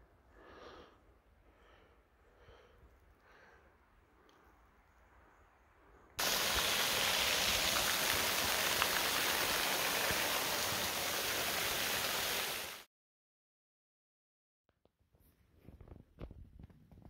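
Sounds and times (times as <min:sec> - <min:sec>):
heavy rain pouring: 0:06.2 - 0:12.9.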